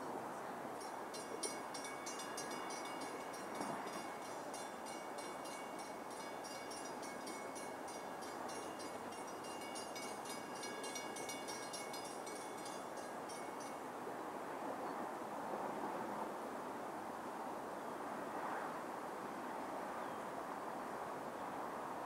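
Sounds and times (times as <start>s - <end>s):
railroad crossing bell ringing: 0.8s - 14.0s.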